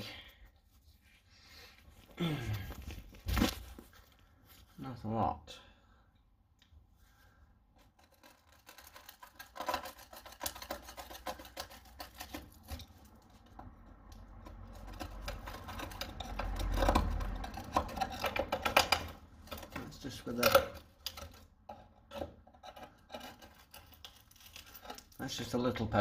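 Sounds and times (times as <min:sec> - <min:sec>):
screwdriver scraping rusted steel: 0:07.8 - 0:25.6.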